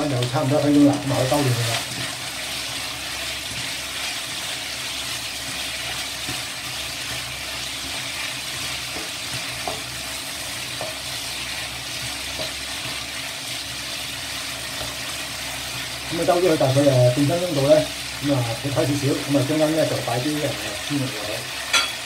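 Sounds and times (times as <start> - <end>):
food sizzling in oil in a wok: 0.0 - 22.0
spatula scraping and tapping pan: 8.7 - 10.0, 10.6 - 11.3, 12.0 - 12.9.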